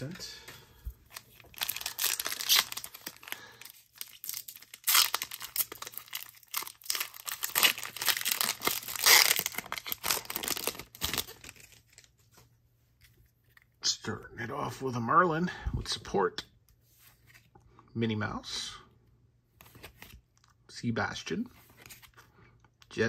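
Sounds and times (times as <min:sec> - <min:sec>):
foil wrapper tearing and crinkling: 0:01.4 - 0:12.1.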